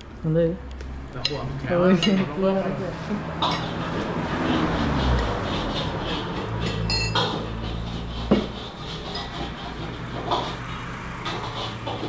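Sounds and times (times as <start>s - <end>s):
metal kitchenware clattering: 1.2s - 2.4s, 6.4s - 7.8s
ringing metallic clank: 6.9s - 7.2s.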